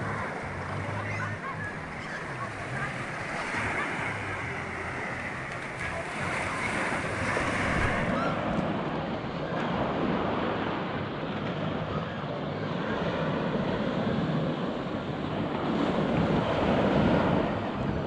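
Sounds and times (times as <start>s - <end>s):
scattered voices of people: 0.0s - 18.0s
small waves washing onto beach: 0.0s - 18.0s
wind buffeting microphone: 5.9s - 18.0s.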